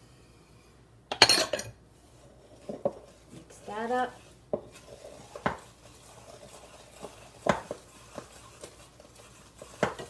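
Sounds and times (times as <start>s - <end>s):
spoon stirring batter: 2.0s - 10.0s.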